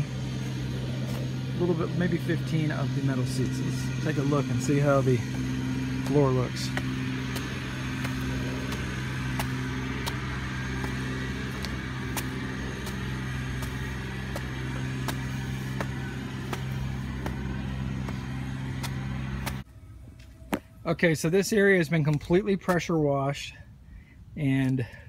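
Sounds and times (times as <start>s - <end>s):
pressure washer engine humming: 0.0s - 20.8s.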